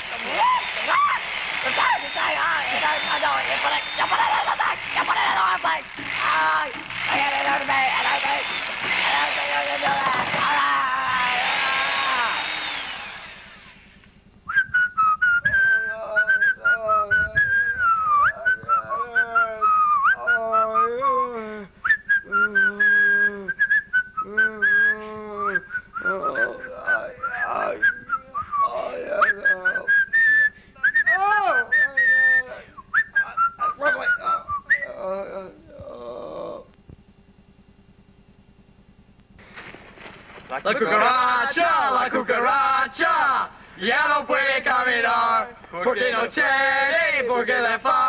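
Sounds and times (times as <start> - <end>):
whistled tune: 14.4 - 20.4, 21.8 - 25.0, 27.2 - 34.9.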